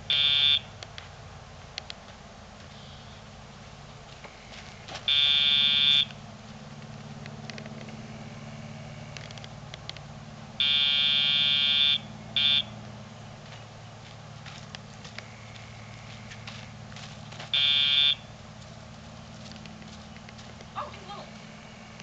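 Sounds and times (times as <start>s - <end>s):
electronic buzzer buzzing: 0.1s - 0.7s, 5.1s - 6.1s, 10.6s - 12.7s, 17.6s - 18.2s.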